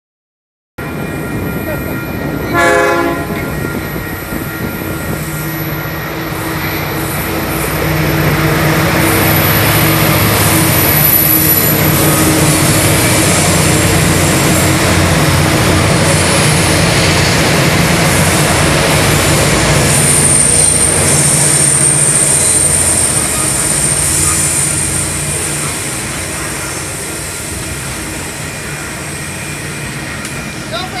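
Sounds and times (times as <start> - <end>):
diesel locomotives droning: 0.8 - 31.0
train horn: 2.5 - 3.7.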